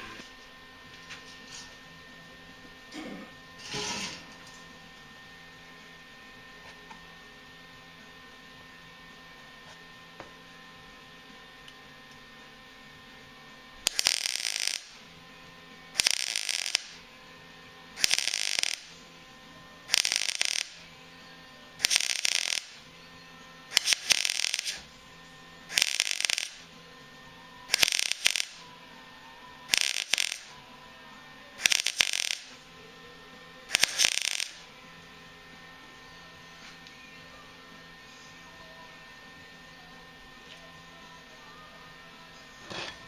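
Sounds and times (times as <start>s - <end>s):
welding arc crackling: 13.8s - 15.2s, 15.9s - 17.1s, 17.9s - 21.0s, 21.8s - 22.9s, 23.7s - 25.1s, 25.7s - 26.7s, 27.7s - 28.7s, 29.7s - 30.6s, 31.6s - 32.7s, 33.6s - 34.8s.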